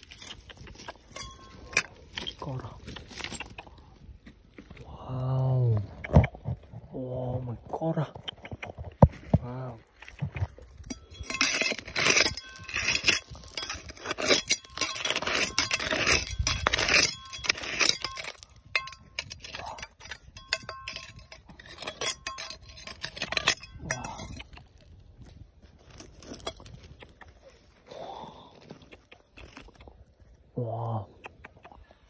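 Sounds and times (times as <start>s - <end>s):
metal trowel scraping gravel: 0.0s - 3.6s, 10.7s - 27.8s.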